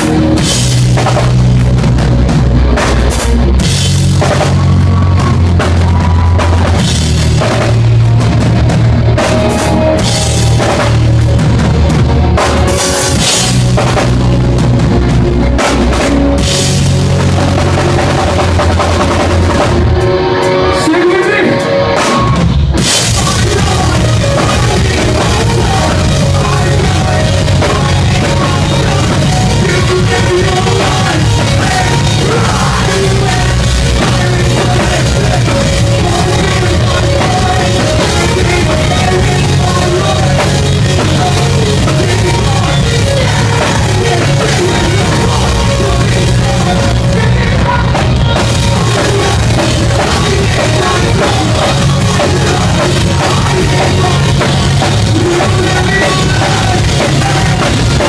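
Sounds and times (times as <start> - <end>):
rock band playing: 0.0 - 58.0
person singing: 23.0 - 58.0.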